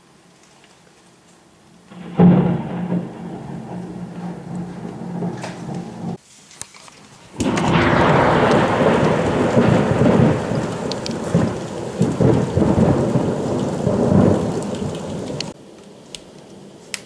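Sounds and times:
thunder crack and rumble: 1.9s - 6.2s, 7.4s - 15.6s.

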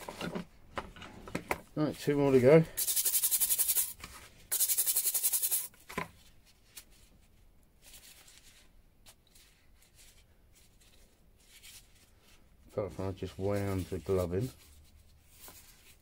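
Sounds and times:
brush scrubbing metal: 2.8s - 3.9s, 4.5s - 5.7s.

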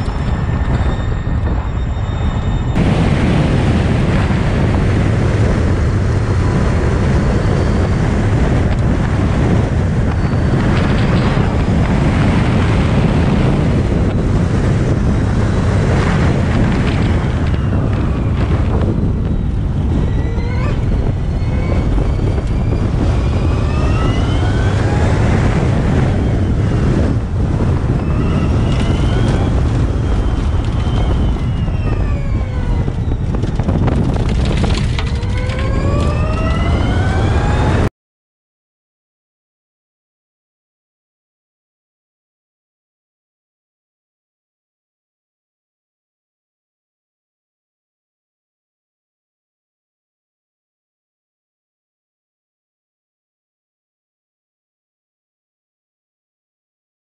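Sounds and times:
wind and road noise rumble: 0.0s - 37.9s
electric motor whining: 16.8s - 37.9s.

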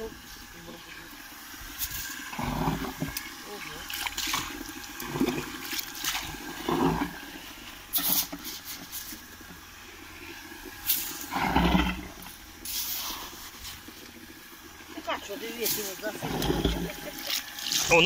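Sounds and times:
shovel scraping wet sandy soil: 7.9s - 9.2s, 12.6s - 13.8s.

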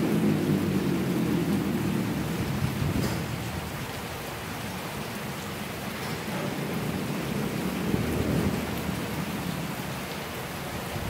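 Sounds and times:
steady rain: 0.0s - 11.0s
thunder rumbling: 0.0s - 11.0s.

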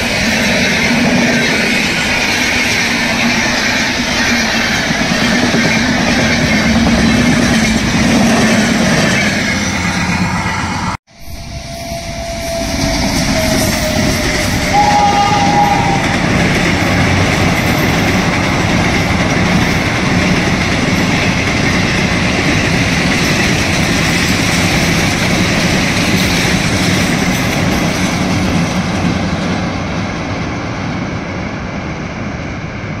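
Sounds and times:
passenger train running past: 0.0s - 33.0s.

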